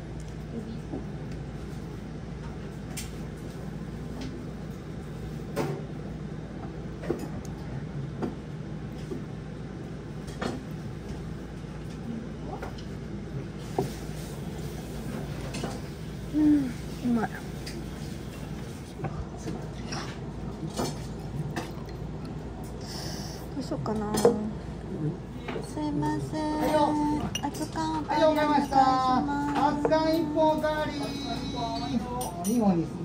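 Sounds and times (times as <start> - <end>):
steady low hum: 0.0 - 33.0
tableware clinking: 26.6 - 32.8.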